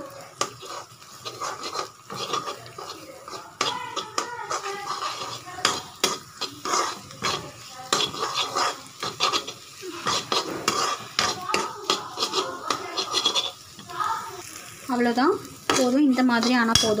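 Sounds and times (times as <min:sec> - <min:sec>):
metal spatula scraping a frying pan: 0:00.0 - 0:14.5, 0:15.5 - 0:17.0.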